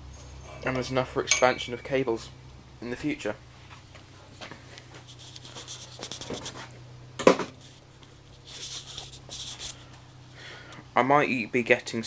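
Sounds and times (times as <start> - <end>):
camera handling rubbing noise: 4.9 - 6.8, 7.6 - 9.9.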